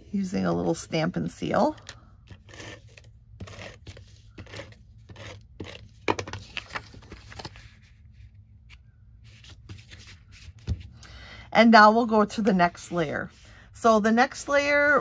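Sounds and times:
paper rustling and scraping: 0:02.3 - 0:10.9.

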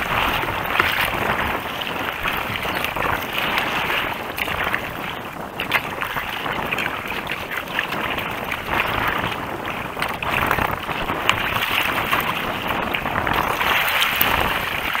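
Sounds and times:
water slapping against kayak: 0:00.0 - 0:15.0
wind buffeting microphone: 0:00.0 - 0:15.0.

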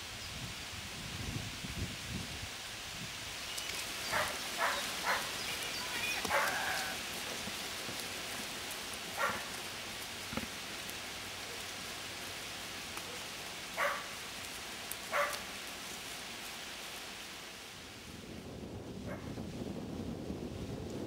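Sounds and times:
sheep moving through grass: 0:00.8 - 0:21.0
dog barking: 0:04.1 - 0:05.3, 0:06.3 - 0:07.0, 0:09.2 - 0:09.5, 0:13.8 - 0:14.1, 0:15.1 - 0:15.4.

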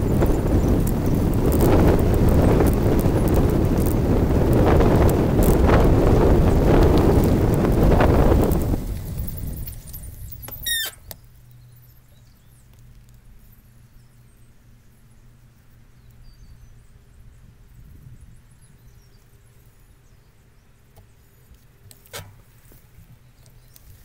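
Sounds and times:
bicycle tyres rolling on gravel: 0:00.0 - 0:14.4.

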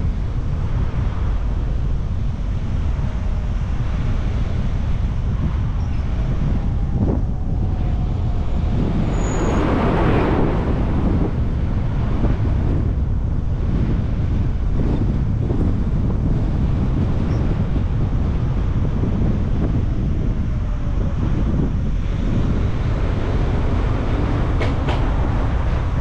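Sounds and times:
low road rumble: 0:00.0 - 0:26.0
wind buffeting microphone: 0:00.0 - 0:26.0.

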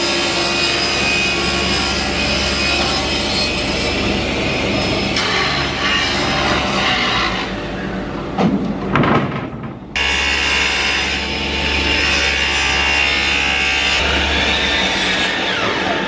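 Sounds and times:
table saw cutting plywood: 0:00.0 - 0:07.6, 0:10.0 - 0:16.0
machine hum with high whine: 0:00.0 - 0:16.0.

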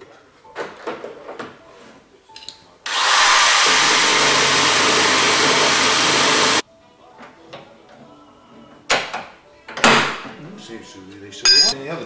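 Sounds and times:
power drill drilling metal: 0:02.9 - 0:06.6.

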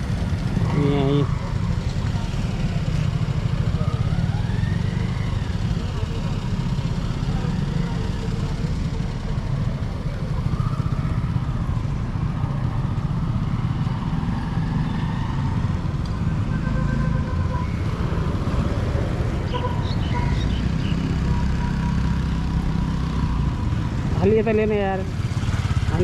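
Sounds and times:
motorcycle engine running: 0:00.0 - 0:14.7, 0:15.4 - 0:26.0.

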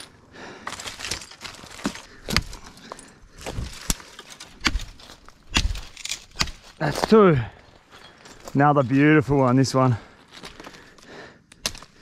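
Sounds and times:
branches rustling: 0:00.0 - 0:12.0
twigs snapping: 0:00.6 - 0:07.2, 0:10.3 - 0:12.0.

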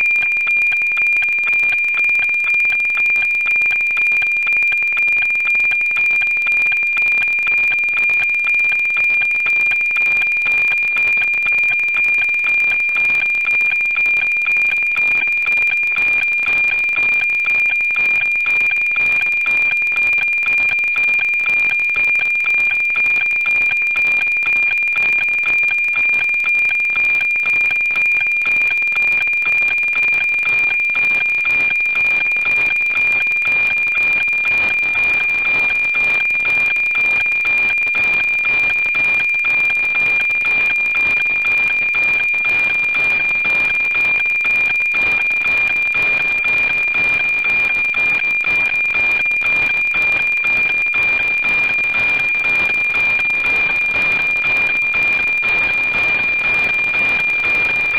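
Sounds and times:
satellite signal tone with ticking pulse: 0:00.0 - 0:57.9.

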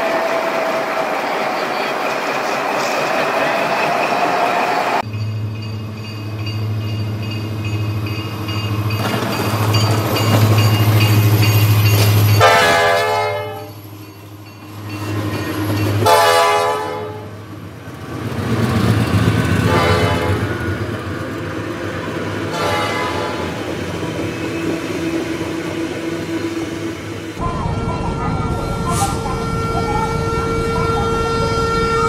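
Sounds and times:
diesel locomotive engine drone: 0:00.0 - 0:32.0
locomotive air horn blasts: 0:12.4 - 0:13.7, 0:16.0 - 0:17.4, 0:19.7 - 0:20.6, 0:22.5 - 0:23.6, 0:28.9 - 0:32.0.

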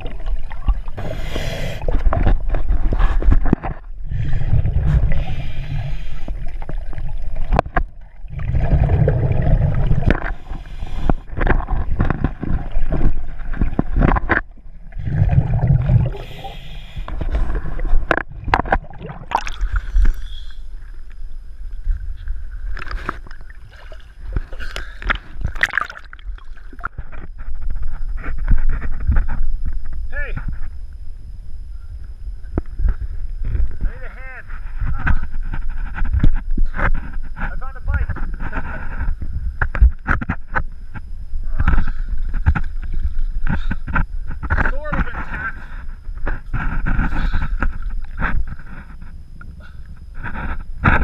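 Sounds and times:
underwater regulator bubbling: 0:00.0 - 0:21.2, 0:21.9 - 0:27.9.

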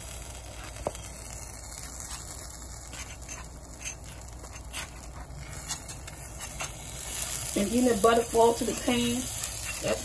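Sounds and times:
spatula scraping griddle: 0:01.8 - 0:10.0.

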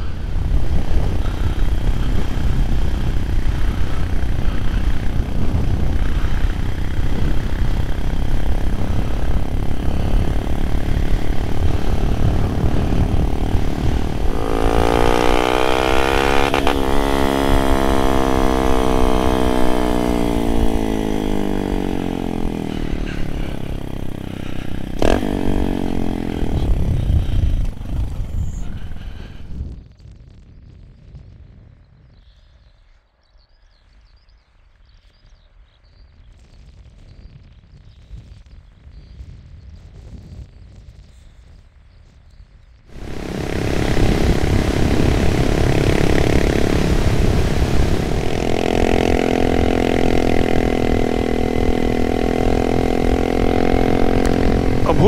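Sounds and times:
motorcycle engine running: 0:00.0 - 0:29.6, 0:42.9 - 0:55.0
wind rumble on microphone: 0:00.0 - 0:55.0.

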